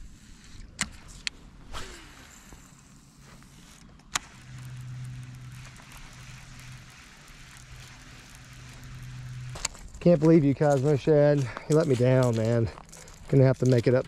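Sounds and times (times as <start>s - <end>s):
fishing reel whirring: 1.7s - 10.5s.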